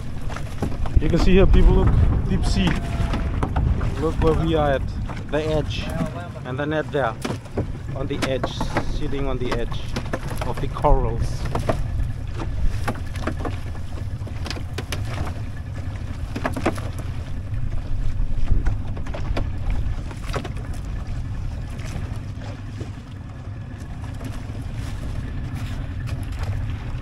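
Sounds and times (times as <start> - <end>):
water knocks and slaps: 0.0 - 27.0
wind buffeting microphone: 0.0 - 27.0.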